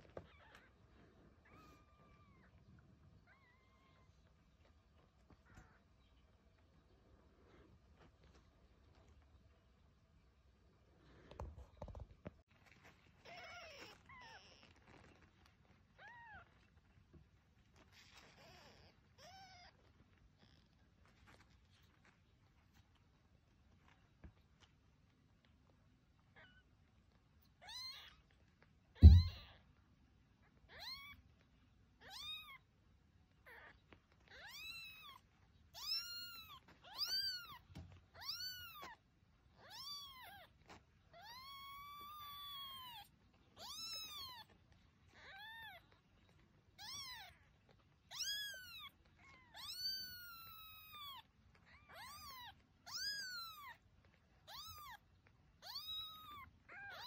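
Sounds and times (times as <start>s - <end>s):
loud thump: 29.0s - 29.4s.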